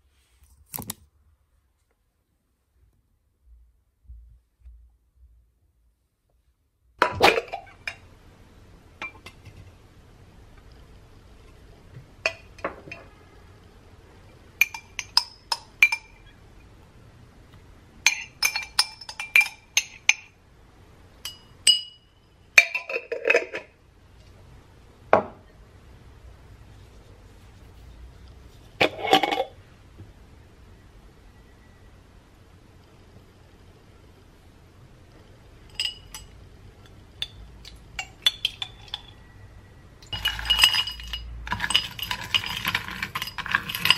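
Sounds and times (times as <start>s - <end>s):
glasses clinking: 14.6s - 16.3s, 18.0s - 20.3s, 21.2s - 23.7s, 35.7s - 36.4s, 37.2s - 39.3s, 40.0s - 43.9s.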